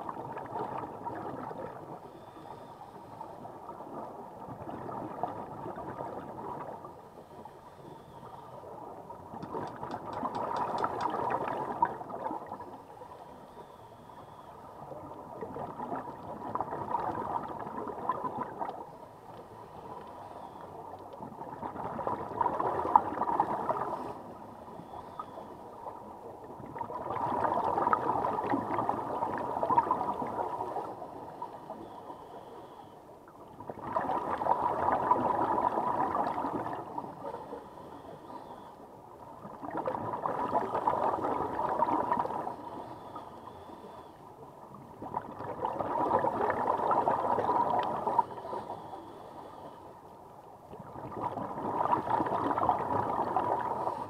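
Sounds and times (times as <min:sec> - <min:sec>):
underwater bubbles rushing: 0:00.0 - 0:02.1, 0:03.4 - 0:07.1, 0:08.6 - 0:13.2, 0:14.8 - 0:19.0, 0:21.1 - 0:25.1, 0:25.7 - 0:31.8, 0:33.3 - 0:37.5, 0:39.2 - 0:43.5, 0:44.7 - 0:48.8, 0:50.7 - 0:54.0.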